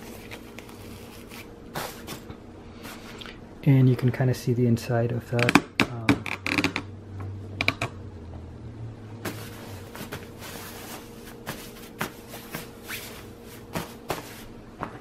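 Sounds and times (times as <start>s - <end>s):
jacket lining rustling and crinkling: 0.0s - 2.3s, 9.2s - 15.0s.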